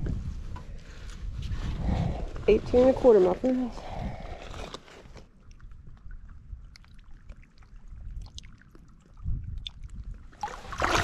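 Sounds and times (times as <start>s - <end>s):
water trickling and lapping: 2.2s - 11.0s
loud splash: 10.4s - 11.0s.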